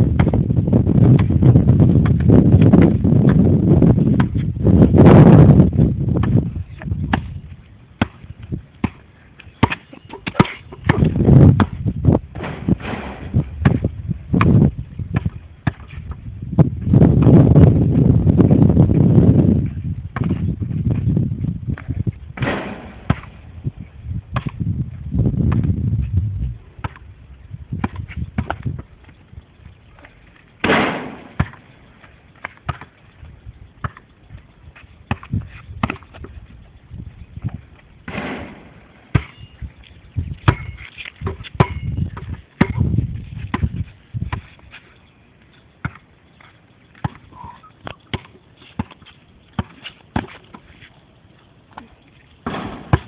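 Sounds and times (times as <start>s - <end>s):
basketball bouncing on hard surfaces: 0.0s - 4.5s, 6.1s - 7.4s, 8.0s - 9.0s, 9.6s - 17.6s, 20.1s - 21.0s, 21.7s - 23.4s, 25.4s - 25.8s, 26.8s - 27.1s, 27.8s - 28.9s, 30.6s - 31.7s, 32.4s - 33.0s, 33.8s - 34.1s, 35.1s - 36.4s, 37.4s - 39.6s, 40.4s - 44.5s, 45.8s - 50.7s, 52.4s - 53.0s.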